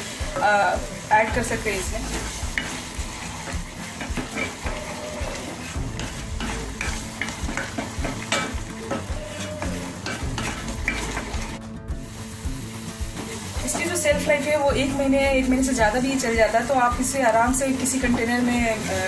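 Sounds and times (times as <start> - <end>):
paste sizzling in oil: 0.0 - 19.0
wooden spatula scraping pot: 1.2 - 11.6
spatula knocking against pot: 3.5 - 11.3.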